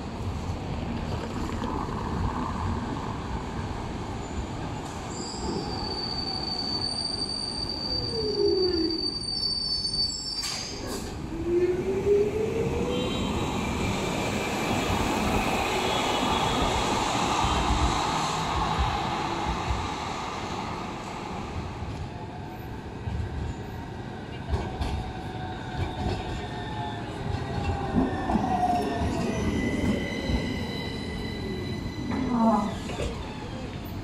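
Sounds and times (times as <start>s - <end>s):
tram rumbling over rails: 0.0s - 34.0s
high wheel squeal: 5.1s - 10.8s, 28.4s - 33.6s.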